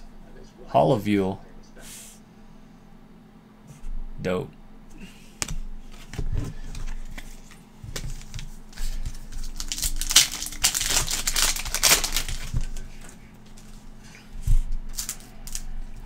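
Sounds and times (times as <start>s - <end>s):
foil wrapper tearing and crinkling: 9.1s - 12.9s, 14.9s - 15.6s.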